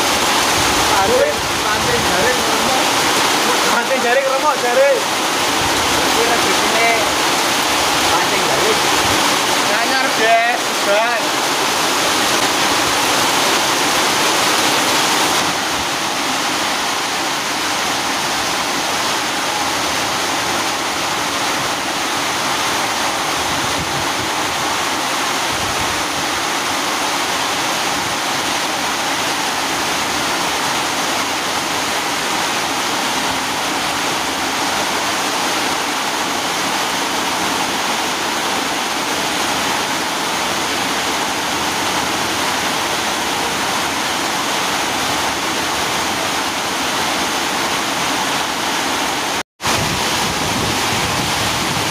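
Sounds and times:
heavy rain pouring: 0.0 - 51.9.

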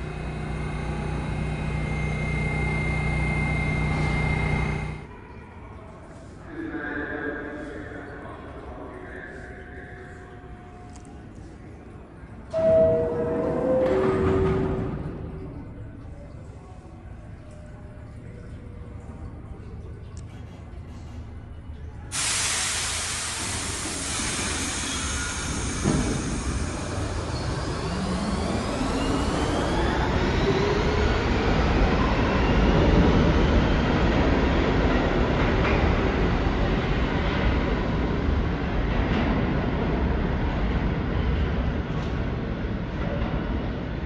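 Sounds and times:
train traction motors whining: 0.0 - 5.1, 21.2 - 31.8
wheels rumbling on rails: 12.5 - 22.1.

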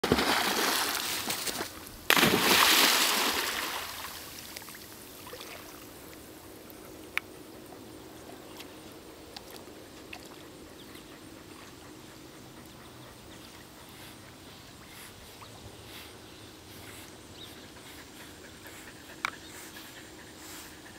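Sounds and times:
dogs splashing in water: 0.0 - 4.2
heavy splash: 0.0 - 4.2.

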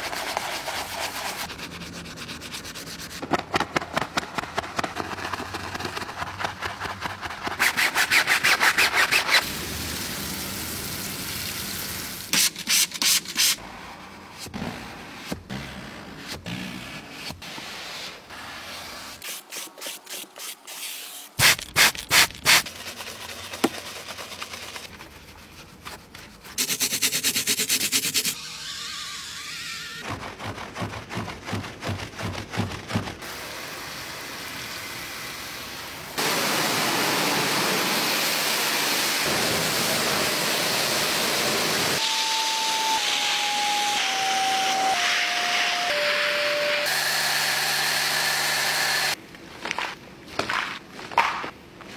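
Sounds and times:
scrubbing and rubbing strokes: 0.0 - 3.3, 21.6 - 29.4.

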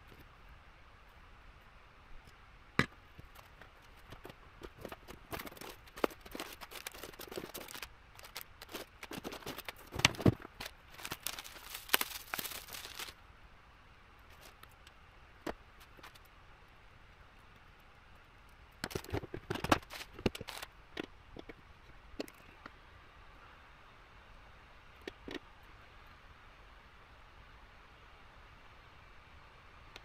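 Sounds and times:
plastic bags crinkling: 4.8 - 13.2, 19.8 - 20.7.

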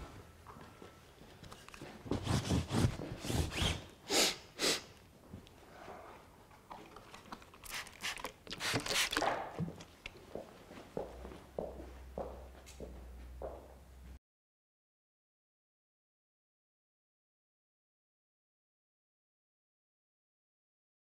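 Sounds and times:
spray bottle squirting: 7.6 - 9.6.

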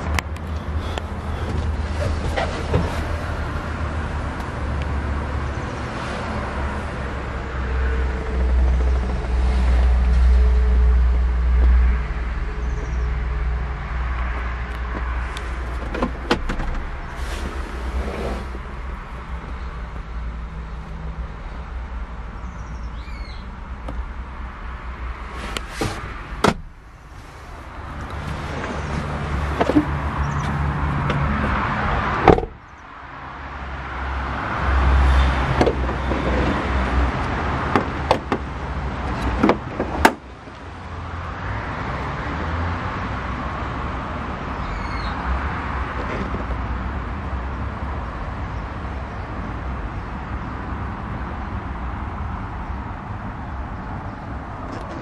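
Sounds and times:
diesel engine idling: 0.0 - 4.8
sharp engine knocks: 26.4 - 26.8, 32.2 - 32.6.

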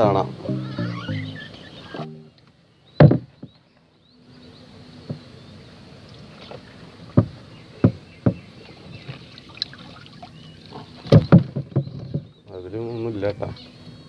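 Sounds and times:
hollow knocks on boat hull: 3.0 - 3.6, 5.0 - 5.3, 7.1 - 9.2, 11.0 - 12.3.

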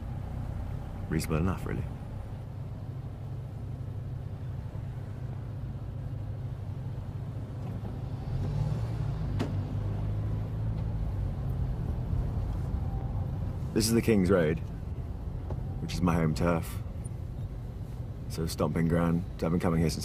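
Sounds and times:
car engine and traffic rumble: 0.0 - 20.0.

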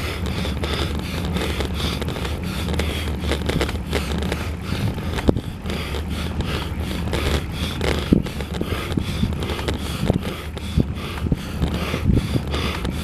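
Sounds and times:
tyre rumble on asphalt: 0.0 - 13.0
wind on microphone: 0.0 - 13.0.

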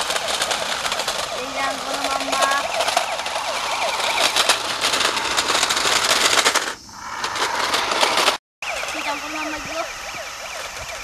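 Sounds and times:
rapid clicking rattle: 0.0 - 8.4
warbling siren tone: 0.0 - 11.0.

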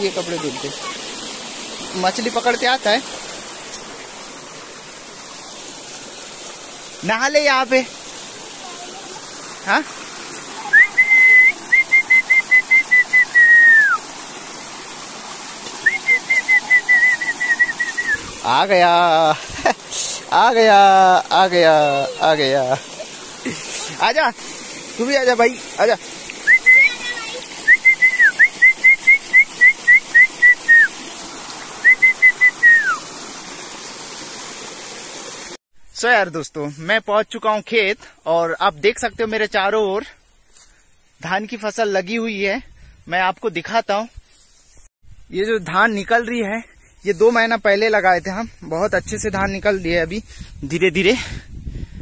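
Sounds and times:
person whistling: 10.7 - 14.0, 15.8 - 18.2, 26.4 - 27.0, 27.7 - 30.9, 31.8 - 33.0.

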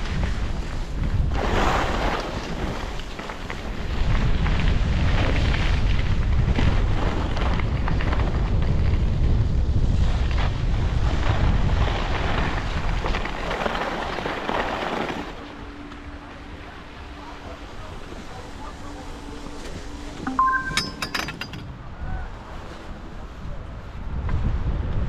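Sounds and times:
skis scraping over snow: 0.0 - 16.5
wind buffeting microphone: 0.0 - 20.1, 21.8 - 25.0.

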